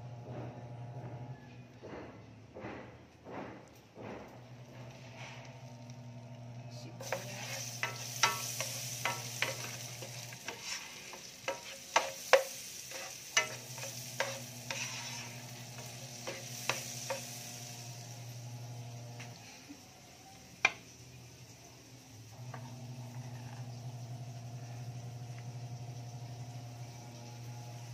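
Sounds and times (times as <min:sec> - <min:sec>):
steady low hum: 0:04.1 - 0:19.4
onions sizzling in oil: 0:04.5 - 0:27.9
spatula knocking and scraping pan: 0:07.0 - 0:19.4.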